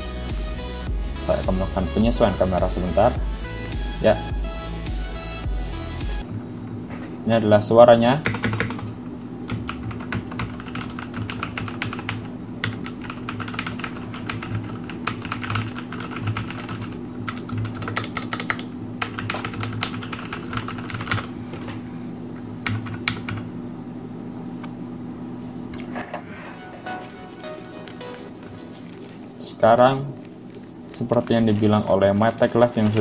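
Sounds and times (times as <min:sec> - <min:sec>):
low steady hum: 0:00.9 - 0:33.0
mechanical keyboard typing: 0:08.2 - 0:21.3, 0:22.6 - 0:23.4, 0:26.9 - 0:33.0.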